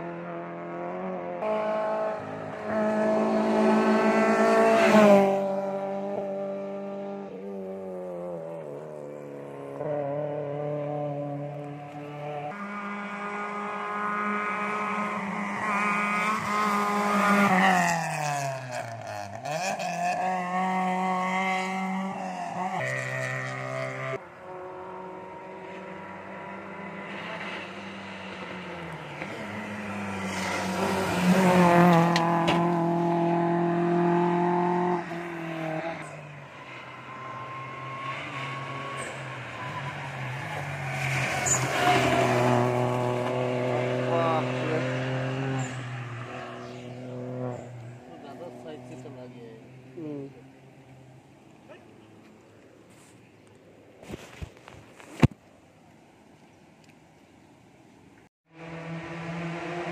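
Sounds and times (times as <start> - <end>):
rally cars racing past: 0.0 - 52.4, 58.5 - 59.9.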